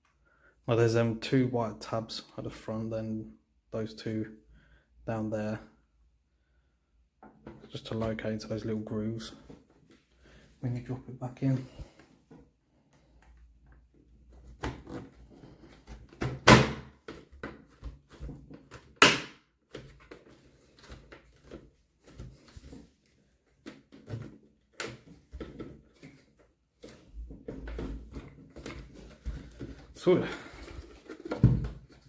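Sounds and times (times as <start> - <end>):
sharp plastic snaps: 18.7 - 19.9
plastic rubbing and tapping: 19.6 - 29.9, 30.5 - 32.0.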